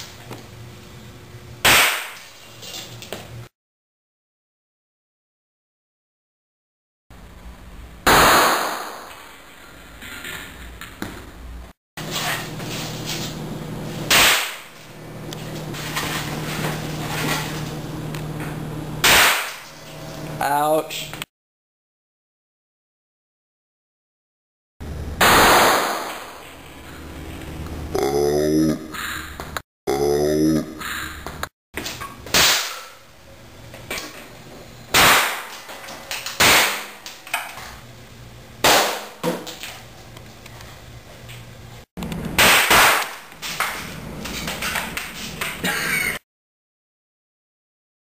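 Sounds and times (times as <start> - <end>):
sharp explosive bangs: 8.0 - 9.1, 25.2 - 26.4
faint hum: 12.3 - 19.0.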